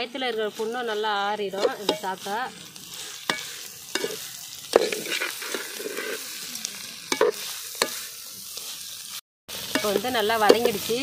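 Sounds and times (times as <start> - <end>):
food sizzling: 0.0 - 11.0
ladle scraping metal pot: 0.7 - 2.2, 2.8 - 6.4, 7.1 - 8.1.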